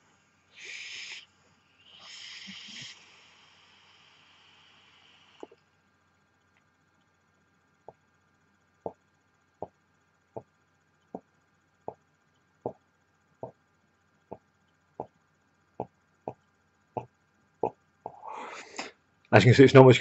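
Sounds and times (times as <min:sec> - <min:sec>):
soft puffs of breath: 0:00.0 - 0:05.5, 0:18.1 - 0:19.0.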